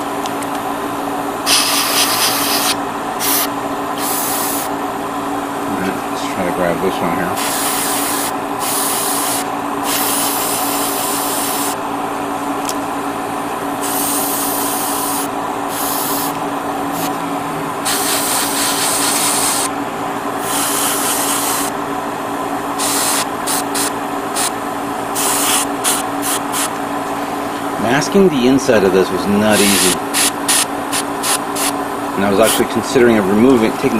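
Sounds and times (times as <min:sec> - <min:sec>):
steady motor hum: 0:00.0 - 0:33.9
airbrush spraying hiss: 0:01.5 - 0:04.7, 0:07.4 - 0:11.8, 0:13.8 - 0:17.2, 0:17.8 - 0:19.7, 0:20.4 - 0:21.7, 0:22.8 - 0:24.5, 0:25.2 - 0:26.7, 0:29.6 - 0:31.7.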